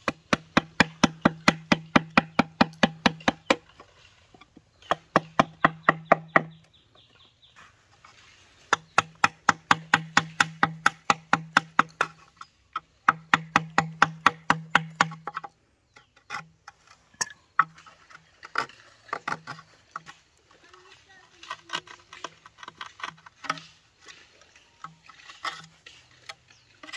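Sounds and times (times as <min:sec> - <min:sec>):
tool knocking on bamboo: 0:00.0 - 0:03.6, 0:04.8 - 0:06.6, 0:08.7 - 0:15.5.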